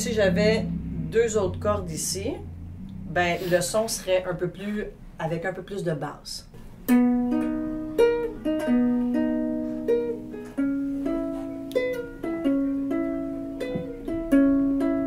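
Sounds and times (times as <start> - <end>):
ukulele chords plucked slowly: 0.0 - 3.2, 6.6 - 15.0.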